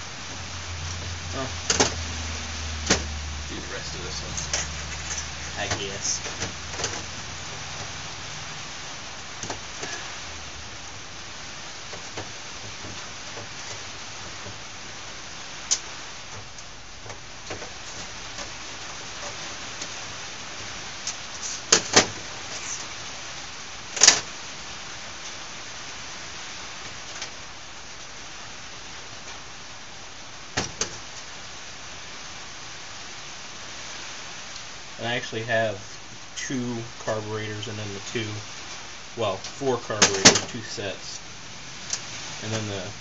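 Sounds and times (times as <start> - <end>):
steady hiss: 0.0 - 43.0.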